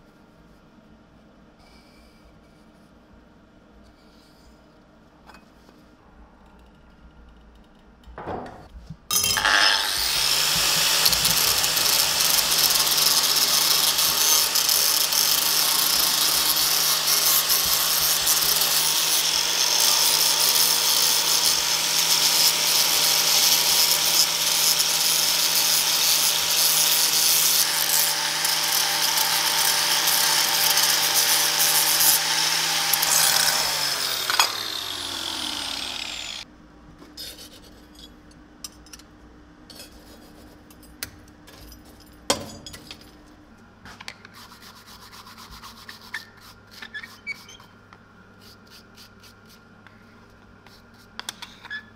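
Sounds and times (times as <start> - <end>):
grinder winding down whine: 9.1 - 15.0, 27.6 - 36.4
angle grinder grinding steel: 9.1 - 36.4.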